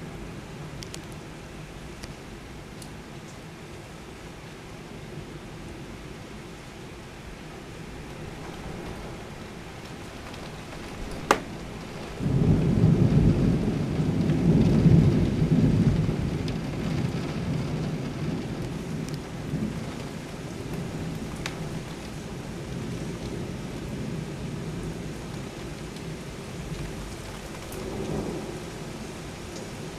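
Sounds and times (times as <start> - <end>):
heavy rain: 0.0 - 29.9
low thunder rumble: 7.6 - 29.9
thunder crack: 8.2 - 22.1.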